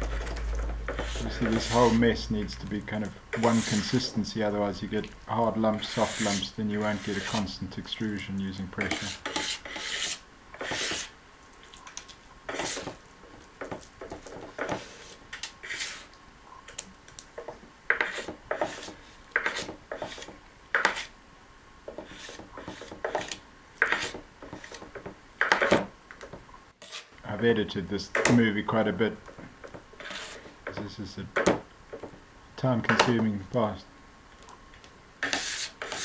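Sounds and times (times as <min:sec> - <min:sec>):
knife scraping wet clay: 0:00.0 - 0:13.1, 0:13.7 - 0:16.2, 0:17.9 - 0:21.1, 0:21.9 - 0:25.7, 0:26.8 - 0:27.2, 0:30.0 - 0:30.8, 0:35.2 - 0:36.0.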